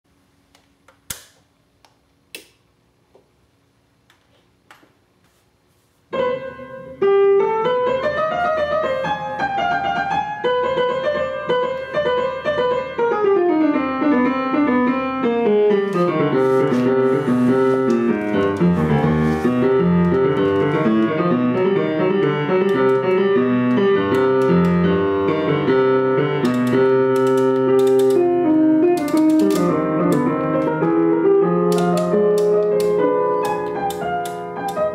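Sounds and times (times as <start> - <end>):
piano music: 6.1 - 34.9
sharp clicks: 26.4 - 30.7, 31.7 - 34.9.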